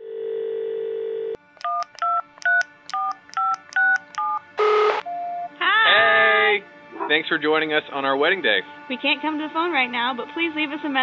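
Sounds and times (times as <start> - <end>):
telephone dial tone: 0.0 - 5.5
buzzy tone: 4.4 - 11.0.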